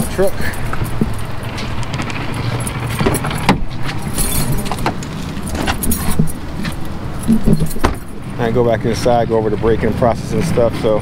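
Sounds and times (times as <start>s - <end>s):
sharp clicks and rattles: 0.0s - 9.1s
truck door unlatching and opening: 0.8s - 8.3s.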